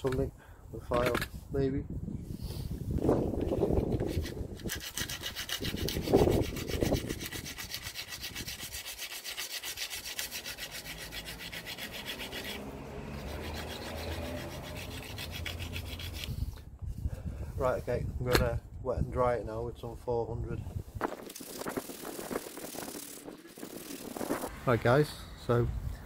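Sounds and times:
abrasive rubbing on metal wheel: 3.8 - 16.4, 21.2 - 24.5.

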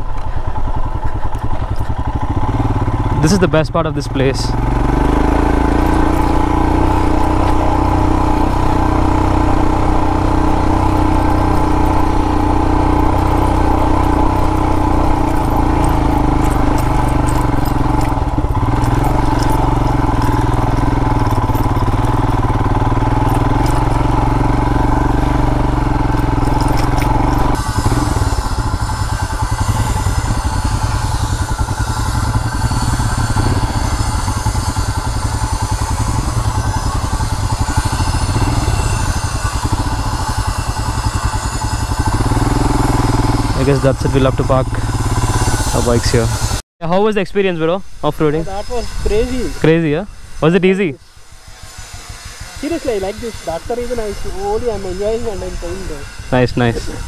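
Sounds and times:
motorcycle engine running: 0.0 - 46.6, 47.2 - 57.0.

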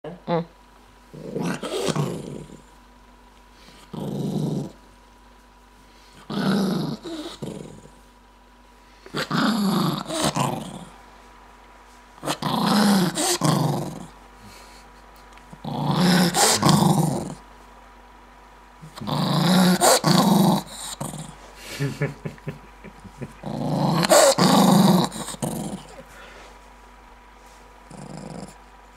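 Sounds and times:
dog growling: 1.1 - 2.7, 3.7 - 4.8, 6.2 - 8.0, 9.1 - 11.0, 12.2 - 14.7, 15.5 - 17.4, 18.8 - 21.4, 22.9 - 26.1, 27.8 - 28.6.

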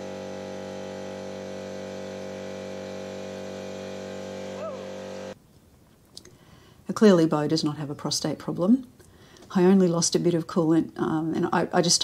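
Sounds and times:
air compressor humming: 0.0 - 5.4.

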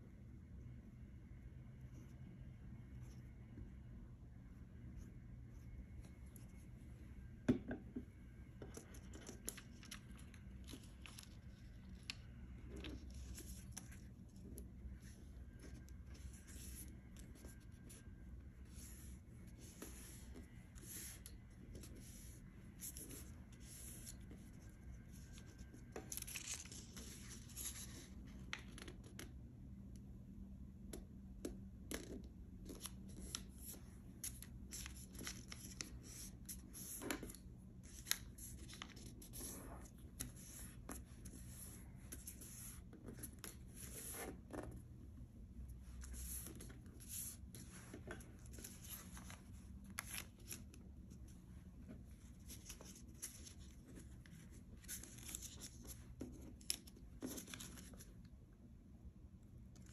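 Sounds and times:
paper crinkling and rustling: 8.7 - 14.4, 18.7 - 29.3, 32.6 - 44.7, 45.9 - 58.2.

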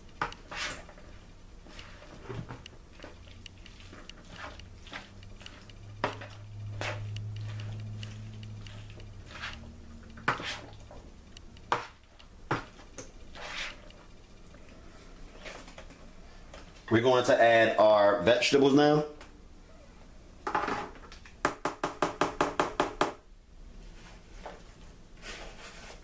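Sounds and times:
spoon squishing food: 0.0 - 16.0.

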